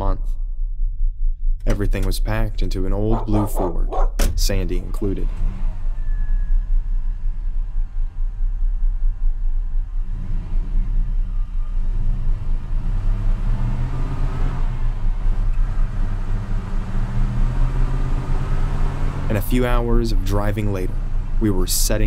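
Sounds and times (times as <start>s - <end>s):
pickup truck engine driving off: 10.0s - 21.4s.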